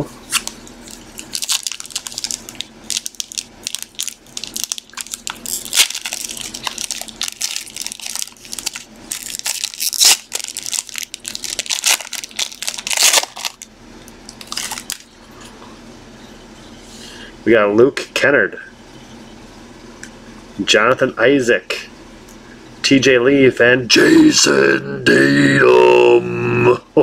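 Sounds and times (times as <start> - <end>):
foil wrapper tearing and crinkling: 0.3 - 13.7, 14.3 - 15.1.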